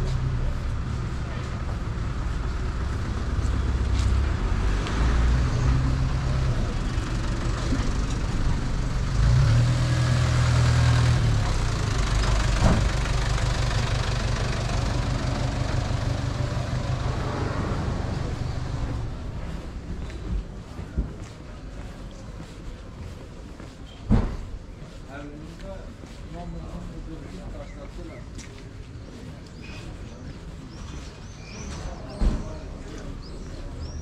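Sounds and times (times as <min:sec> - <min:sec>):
vehicle engine droning: 0:00.0 - 0:20.7
street traffic noise: 0:00.0 - 0:34.0.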